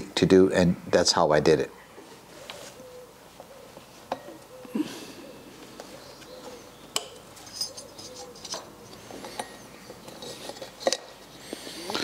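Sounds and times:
belt and metal brackets clicking: 0:07.0 - 0:11.2.

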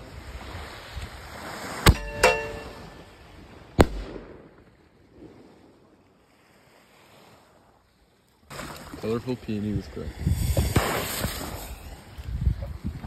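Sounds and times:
firework shell bursting bang: 0:01.9 - 0:03.0
firework mortar launch reports: 0:09.0 - 0:12.0.

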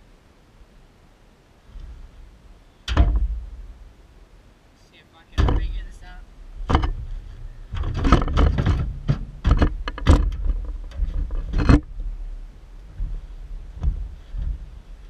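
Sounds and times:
boots knocking on metal truck bed: 0:02.9 - 0:03.6, 0:05.4 - 0:06.0, 0:06.6 - 0:11.9, 0:13.0 - 0:14.8.

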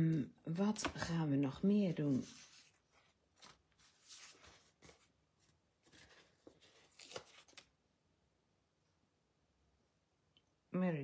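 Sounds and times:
paper rustling: 0:00.8 - 0:07.7.

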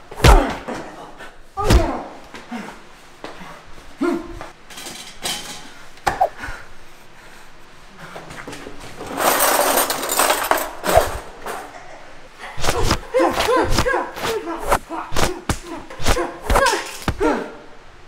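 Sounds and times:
hits and thuds: 0:00.2 - 0:00.7, 0:12.6 - 0:17.3
grunts and short cries: 0:04.0 - 0:04.5, 0:11.5 - 0:17.7.

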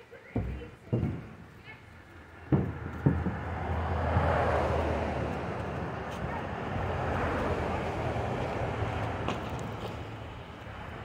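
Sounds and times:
wind buffeting microphone: 0:02.5 - 0:11.0.

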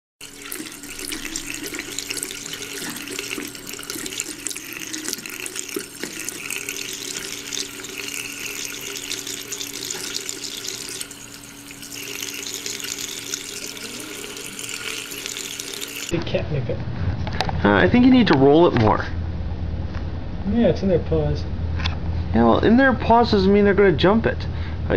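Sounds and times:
tap running into sink: 0:00.2 - 0:16.1
steady low hum: 0:00.2 - 0:24.9.

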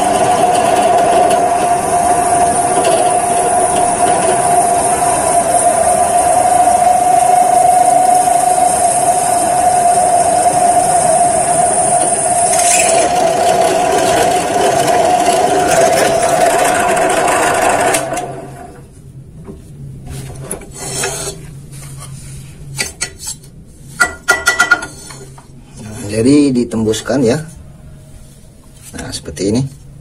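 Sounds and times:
drill press motor whine: 0:00.0 - 0:18.9
drill bit cutting hiss: 0:02.2 - 0:13.9
steel tube clinking: 0:12.4 - 0:13.3.

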